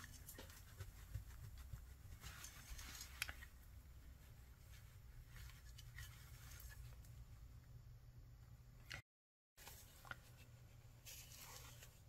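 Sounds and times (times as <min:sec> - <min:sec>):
low steady hum: 0:00.0 - 0:09.0.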